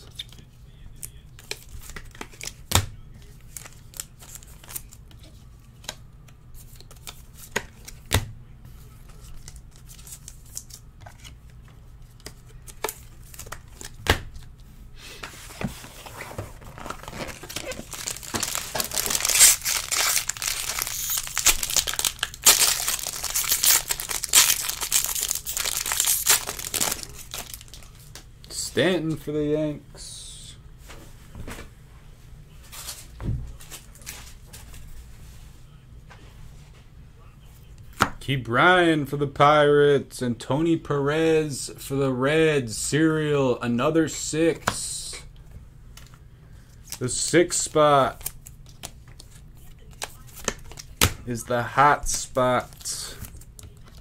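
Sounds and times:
foil wrapper crinkling and tearing: 0:16.7 - 0:27.9.

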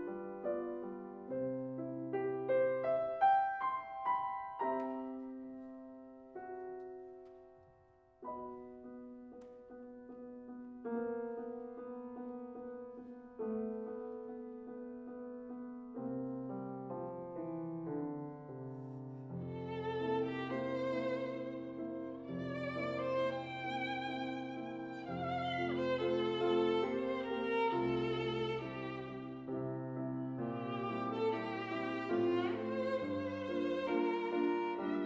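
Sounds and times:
soft piano chords: 0:00.0 - 0:35.0
violin playing with vibrato: 0:19.5 - 0:29.4, 0:30.6 - 0:35.0.

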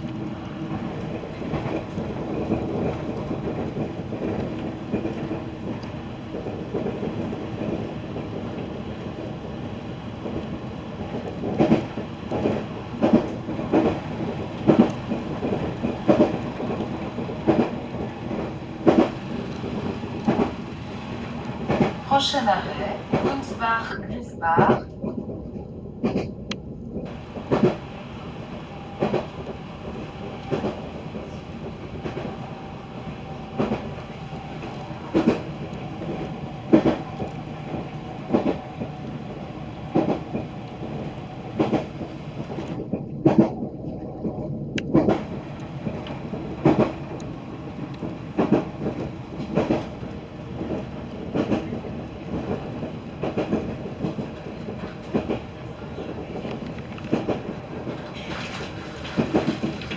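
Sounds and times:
train rumbling: 0:00.0 - 0:59.9
wheels clicking over rail joints: 0:10.2 - 0:20.9, 0:33.5 - 0:59.9.

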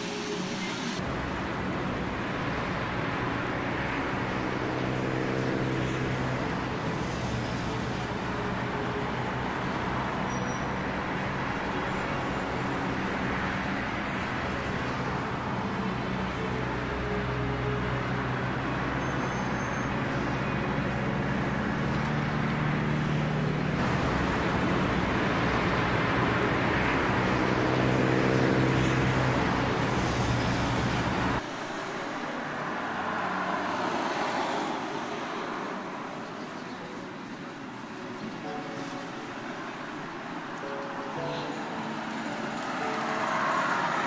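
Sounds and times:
low drone of large engine: 0:00.0 - 0:31.5
cars driving past: 0:00.0 - 0:44.0.

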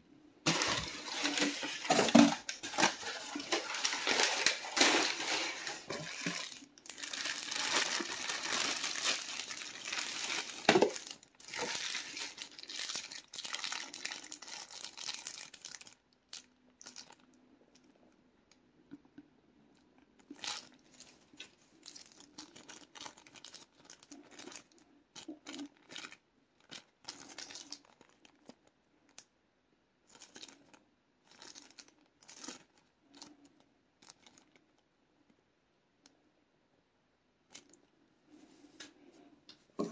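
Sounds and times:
plastic packaging crinkling: 0:00.4 - 0:17.9, 0:20.2 - 0:29.2, 0:30.1 - 0:34.7
sharp plastic crack: 0:07.6 - 0:11.8.

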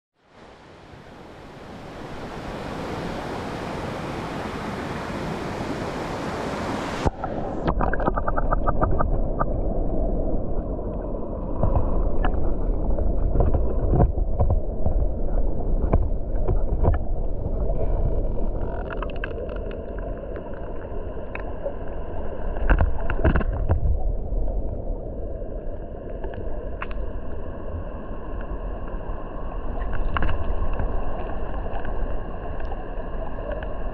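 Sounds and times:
stream rushing over rocks: 0:00.3 - 0:09.1
underwater rumble of current: 0:06.7 - 0:33.9
underwater clicks and knocks: 0:07.1 - 0:09.5, 0:11.6 - 0:20.5, 0:22.6 - 0:24.1, 0:29.9 - 0:30.9.

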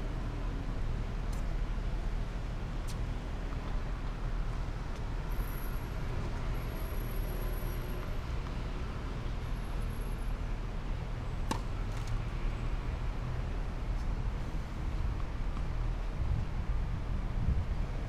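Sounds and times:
distant road traffic rumble: 0:00.0 - 0:18.0
tennis ball being hit: 0:11.5 - 0:12.1.

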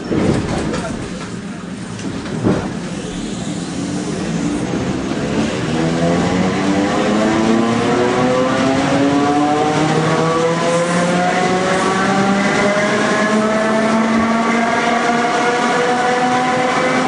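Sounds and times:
electric train motors whining: 0:02.0 - 0:06.4.

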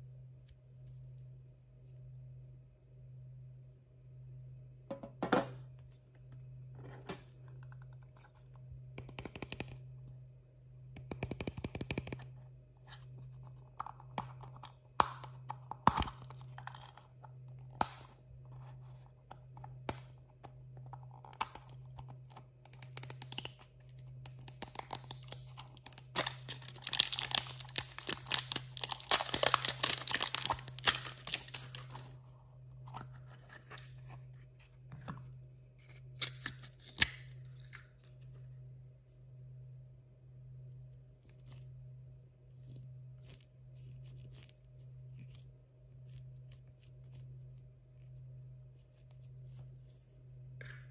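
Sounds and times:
steady low hum: 0:00.0 - 0:50.9
plastic wrapping tearing and crinkling: 0:24.7 - 0:32.1.

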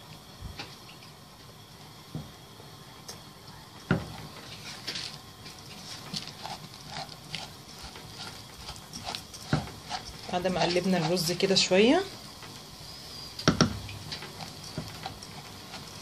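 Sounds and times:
rice grains rustling in pan: 0:04.1 - 0:12.9, 0:14.0 - 0:16.0.

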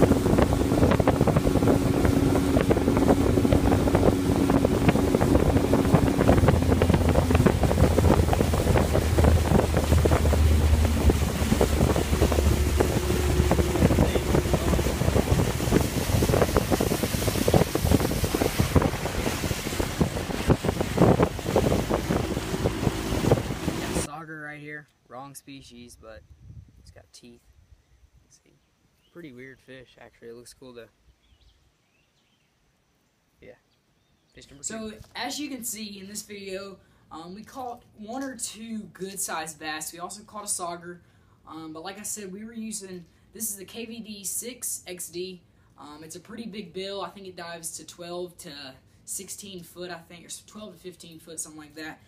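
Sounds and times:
outboard engine drone: 0:00.0 - 0:24.1
water rushing past hull: 0:00.0 - 0:24.1
wind buffeting microphone: 0:00.0 - 0:24.1.

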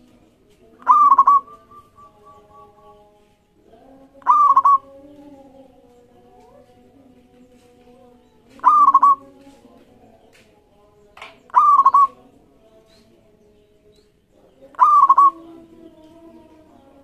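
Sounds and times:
dove cooing: 0:00.8 - 0:03.0, 0:04.2 - 0:05.2, 0:08.5 - 0:09.4, 0:11.5 - 0:12.2, 0:14.7 - 0:15.7.

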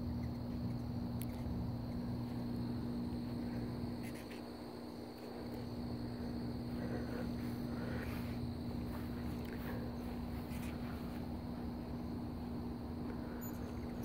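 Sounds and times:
crickets trilling: 0:00.0 - 0:14.0
steady low hum: 0:00.0 - 0:14.0.

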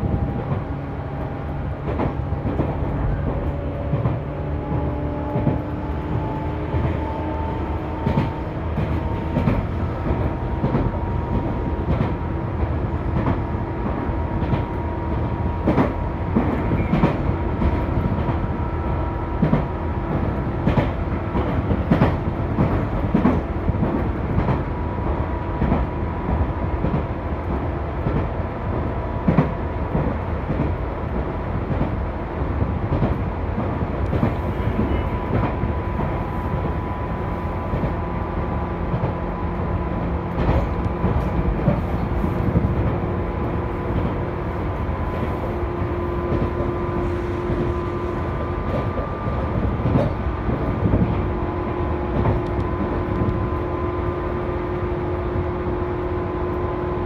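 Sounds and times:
train wheels rumbling: 0:00.0 - 0:57.0.

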